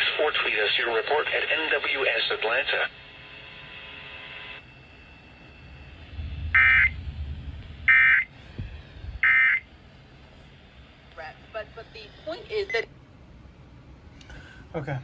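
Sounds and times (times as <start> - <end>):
electronic data burst tones: 4.5 - 7.0, 7.8 - 8.4, 9.2 - 9.7
low handling rumble: 4.6 - 14.6.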